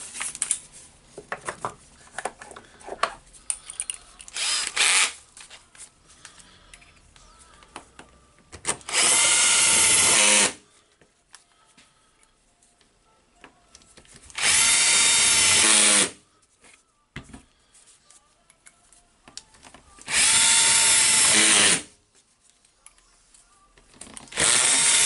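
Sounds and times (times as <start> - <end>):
cordless drill driving screws: 4.3 - 5.2, 8.9 - 10.6, 14.3 - 16.2, 20.1 - 21.9, 24.3 - 25.0.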